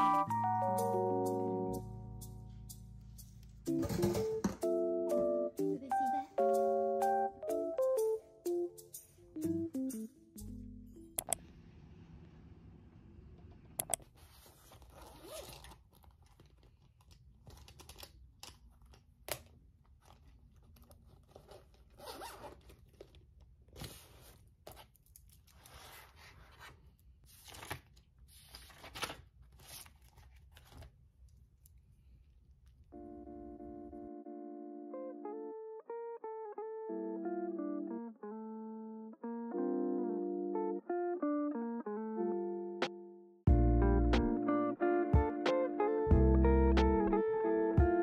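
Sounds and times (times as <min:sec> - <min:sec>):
zipper being pulled: 0:14.2 - 0:16.2, 0:21.3 - 0:22.9.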